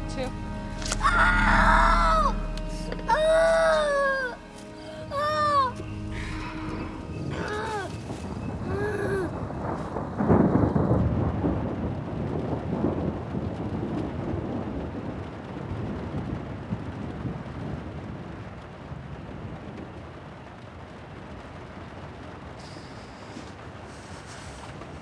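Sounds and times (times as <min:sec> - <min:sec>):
deep rumbling boom: 0:00.0 - 0:14.6.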